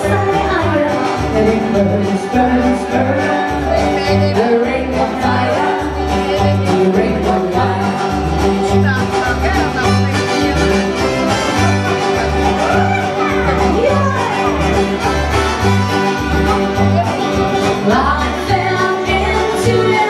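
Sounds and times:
upbeat instrumental music: 0.0s - 20.0s.

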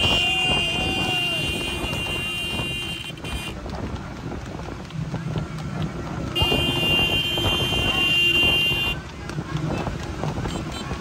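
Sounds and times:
vehicle horn blaring: 0.0s - 3.6s, 6.4s - 9.0s
motorcycle engines running: 0.0s - 11.0s
wind buffeting microphone: 0.0s - 11.0s.

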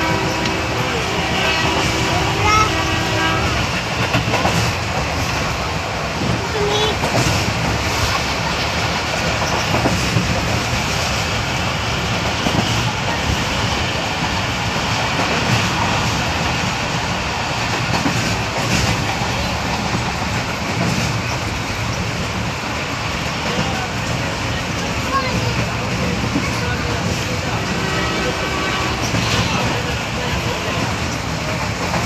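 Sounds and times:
train wheels rumbling on rails: 0.0s - 32.0s.

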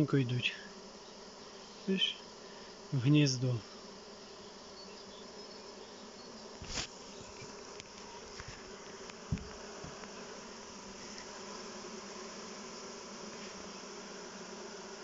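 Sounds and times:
honey bees buzzing: 0.0s - 15.0s.

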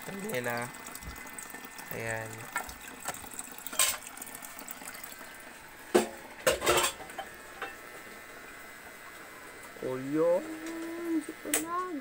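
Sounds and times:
faint water trickle: 0.0s - 6.4s.

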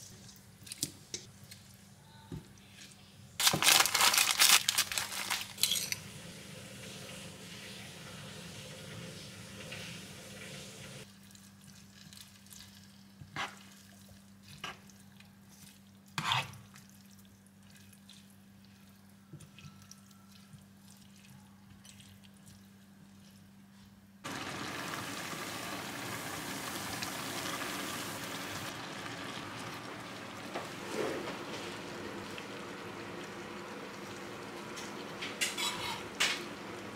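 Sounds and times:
broth simmering and sizzling: 3.4s - 19.2s, 24.2s - 36.9s.

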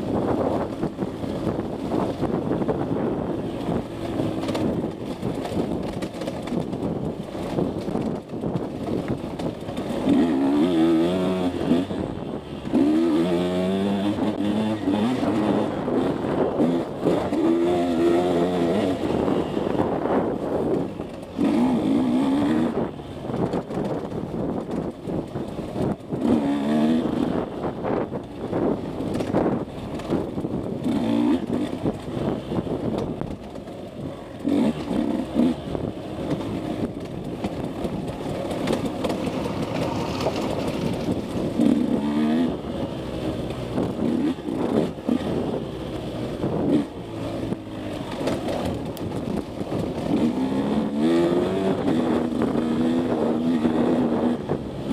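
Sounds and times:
bike knocks and rattles: 0.0s - 10.5s, 23.2s - 26.8s, 27.4s - 41.9s, 46.6s - 50.4s
dirt bike engine revving: 9.7s - 23.5s, 25.8s - 28.7s, 30.8s - 32.8s, 34.2s - 48.8s, 49.6s - 54.9s.

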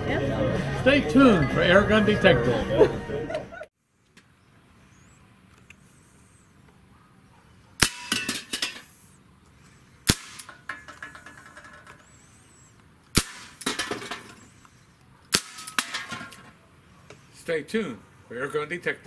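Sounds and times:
airgun shots: 7.8s - 8.5s, 10.0s - 10.6s, 13.1s - 14.4s, 15.3s - 16.4s
metal can clattering: 10.5s - 12.0s.

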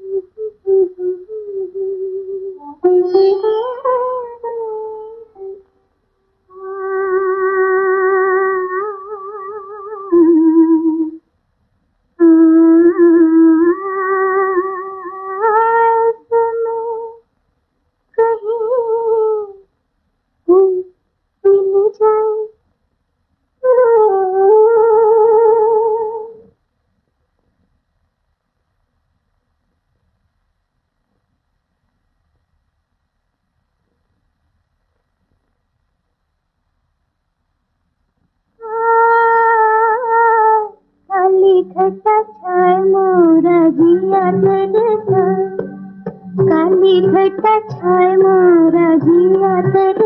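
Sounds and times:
woman humming: 0.0s - 5.7s, 6.5s - 11.2s, 12.2s - 17.2s, 38.6s - 50.0s
woman singing film song: 0.0s - 5.7s, 6.5s - 11.2s, 12.2s - 17.2s, 18.2s - 19.7s, 20.5s - 22.6s, 23.6s - 26.4s, 38.6s - 50.0s
low accompaniment tone: 41.1s - 50.0s.

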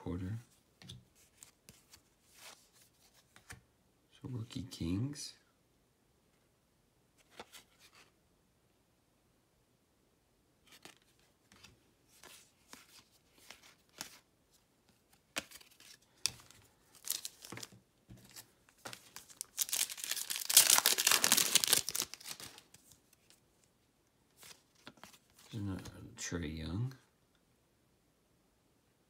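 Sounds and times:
trading cards rustling and tapping: 14.9s - 22.9s
foil card pack tearing open: 17.0s - 17.6s, 19.1s - 22.6s.

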